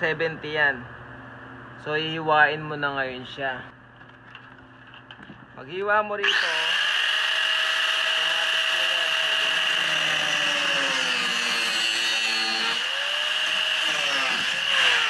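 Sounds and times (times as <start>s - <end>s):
angle grinder cutting steel: 6.2s - 15.0s.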